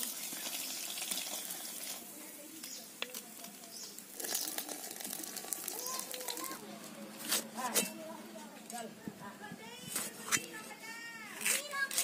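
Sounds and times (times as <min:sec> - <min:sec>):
fish frying in oil: 0:00.0 - 0:02.2, 0:03.4 - 0:06.6
faint voices: 0:02.0 - 0:12.0.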